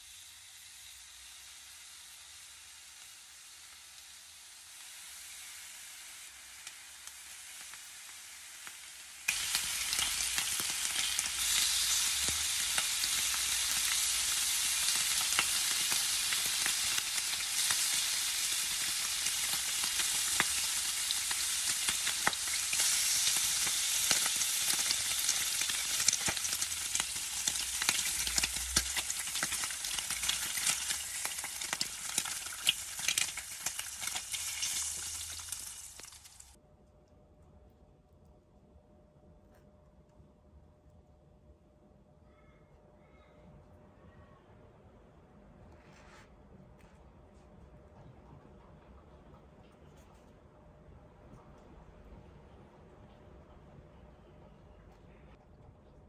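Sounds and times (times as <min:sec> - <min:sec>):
bacon sizzling in a pan: 0:00.0 - 0:36.6.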